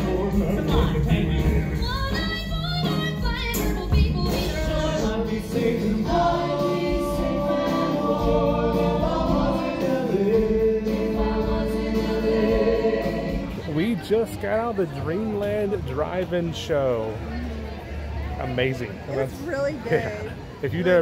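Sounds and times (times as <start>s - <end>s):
band backing: 0.0s - 17.1s
cast singing as choir: 4.5s - 13.6s.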